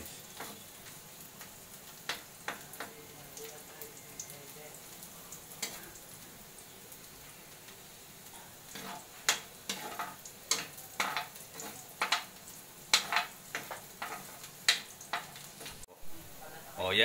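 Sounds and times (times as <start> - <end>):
spatula scraping and tapping pan: 0.0 - 3.0, 5.6 - 5.8, 8.3 - 15.9
garlic sizzling in oil: 0.0 - 17.0.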